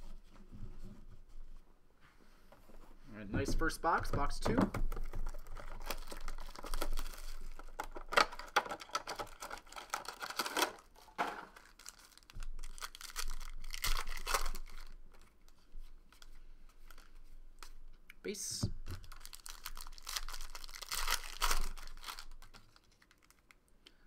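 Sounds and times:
card wrappers torn and crinkled: 4.9 - 15.4, 18.9 - 23.6.

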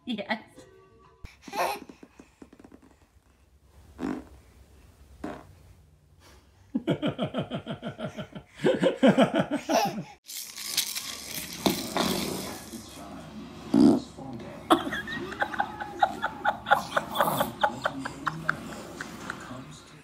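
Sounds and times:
baby laughing: 1.4 - 2.3, 9.6 - 10.2, 14.7 - 19.6.

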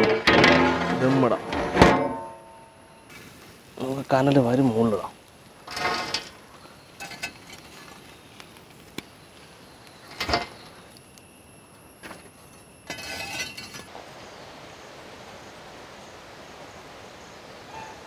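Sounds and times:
embers clinking on steel lid: 5.6 - 8.0, 9.8 - 11.2, 12.0 - 13.9.

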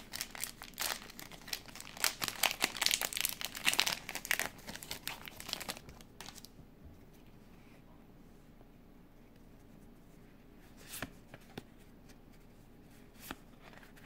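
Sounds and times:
foil wrapper crinkling: 0.0 - 6.5.

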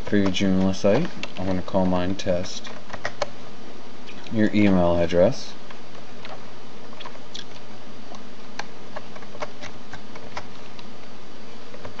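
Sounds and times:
keyboard typing: 0.0 - 3.3, 5.9 - 10.9.

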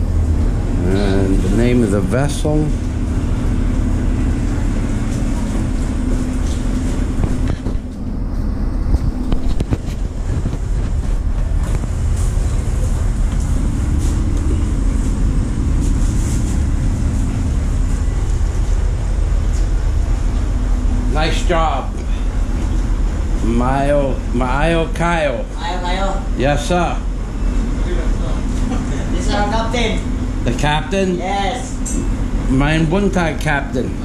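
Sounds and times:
ship engines rumbling: 0.0 - 34.0.

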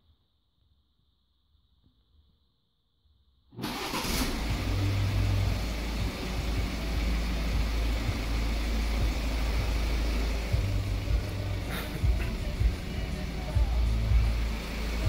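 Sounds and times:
car engine starting and idling: 3.6 - 15.0.

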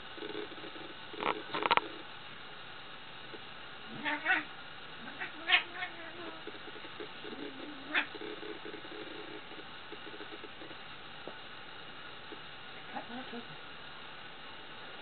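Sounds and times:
cats meowing and yowling: 3.9 - 6.4.

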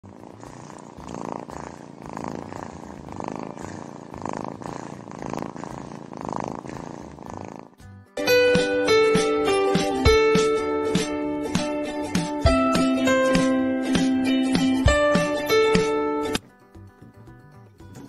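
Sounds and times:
kitten purring: 0.0 - 7.8
plucked guitar music: 7.8 - 18.0.

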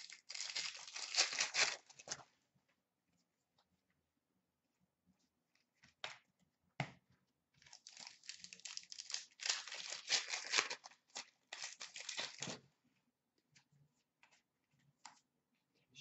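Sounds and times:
card pack wrapper crinkling: 0.0 - 2.2, 7.6 - 12.6.

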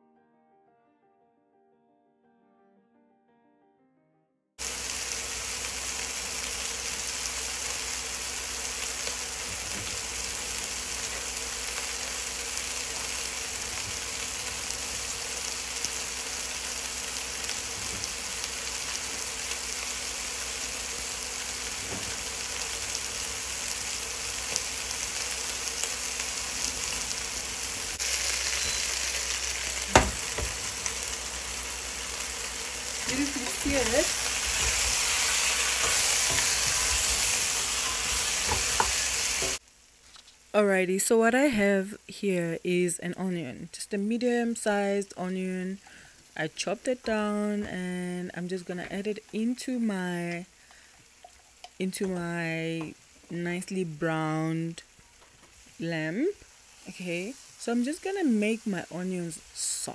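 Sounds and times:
meat sizzling in a pot: 4.6 - 43.0, 43.9 - 59.9
wooden spoon knocking pot: 29.9 - 30.6.

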